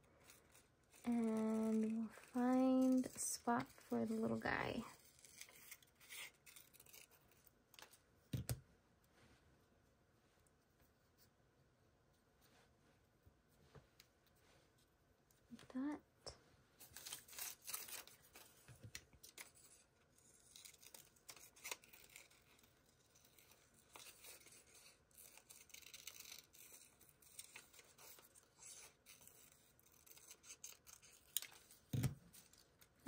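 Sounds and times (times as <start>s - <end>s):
paper rustling: 0.0s - 8.0s, 16.8s - 33.0s
scissors snipping paper: 0.2s - 7.9s, 16.9s - 32.6s.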